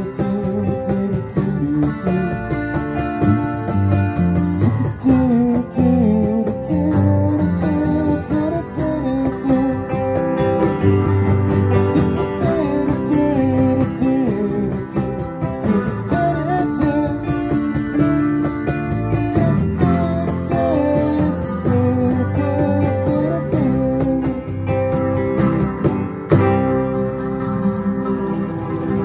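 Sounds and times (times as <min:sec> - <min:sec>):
electric guitar: 0:00.0 - 0:29.0
strummed acoustic guitar: 0:00.0 - 0:29.0
sliding wavering melody line: 0:26.7 - 0:29.0.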